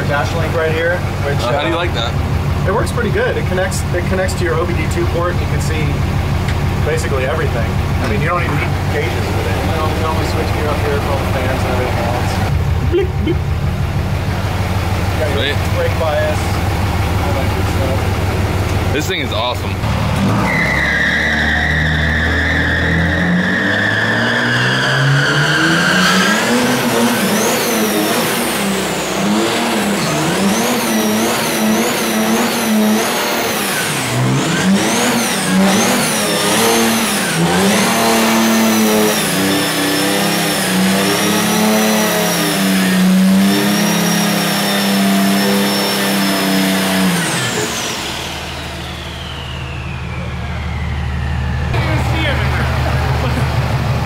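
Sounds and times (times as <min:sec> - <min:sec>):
diesel engine revving: 0:00.0 - 0:54.0
high whine: 0:45.0 - 0:54.0.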